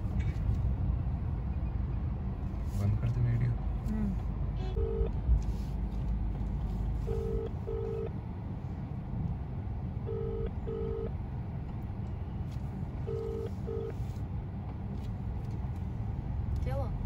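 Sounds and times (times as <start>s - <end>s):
low steady rumble: 0.0s - 17.0s
telephone ringback double beep: 10.1s - 11.1s, 13.1s - 13.9s.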